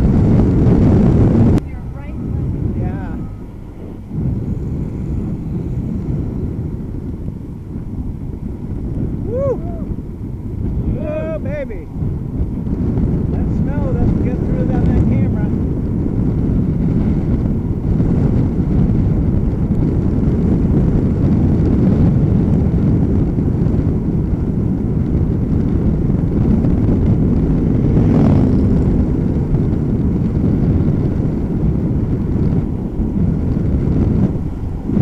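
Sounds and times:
wind buffeting microphone: 0.0s - 35.0s.

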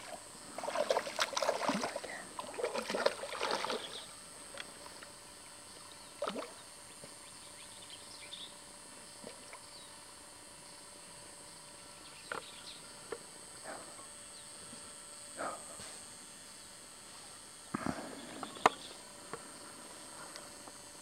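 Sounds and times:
dog splashing through water: 0.6s - 3.9s.

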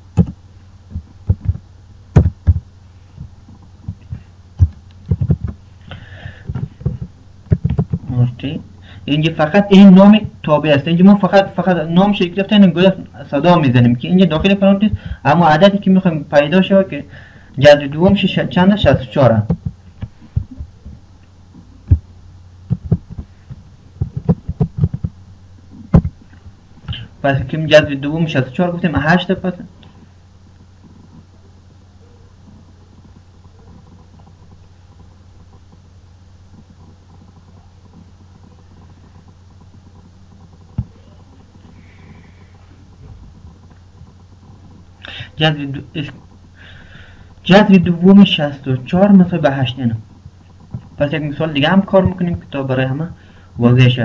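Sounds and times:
faint low hum: 0.0s - 54.0s.

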